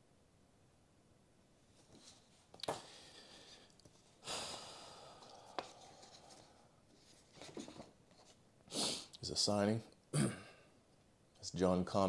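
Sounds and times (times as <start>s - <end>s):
faint scuffs of handling photos: 1.8s - 2.9s, 5.6s - 8.4s
man sighing: 4.2s - 5.7s.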